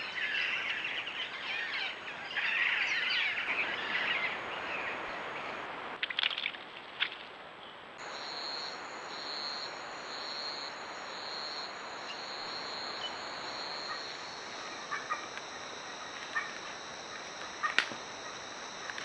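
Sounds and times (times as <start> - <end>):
background hiss: 3.4 - 19.0
buzzing insect chorus: 8.0 - 19.0.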